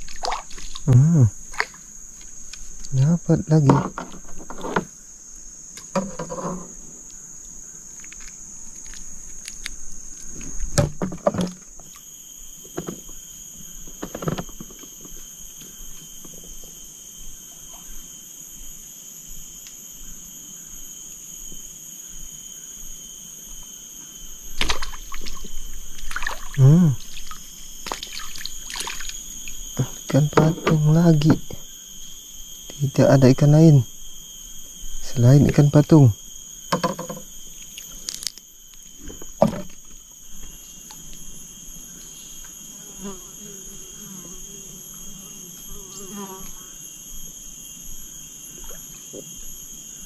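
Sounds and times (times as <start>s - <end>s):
water sloshing: 0.0s - 0.9s, 24.6s - 29.6s
crickets shrilling: 0.0s - 50.0s
knocks: 36.7s - 37.3s.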